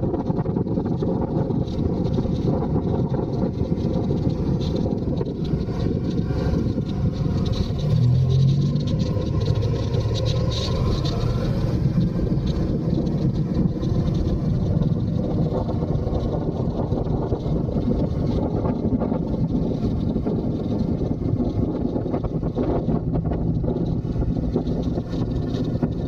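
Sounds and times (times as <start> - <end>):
motorcycle engine running: 0.0 - 26.0
tyre rumble on cobblestones: 0.0 - 26.0
wind rush on microphone: 0.0 - 26.0.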